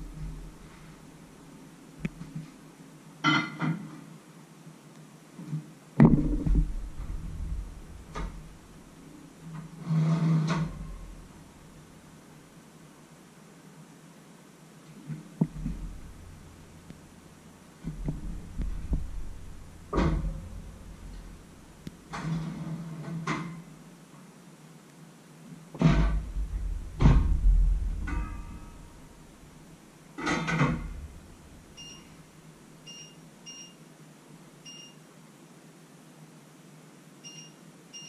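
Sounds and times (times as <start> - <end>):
oven door shutting: 30.2 - 31.1.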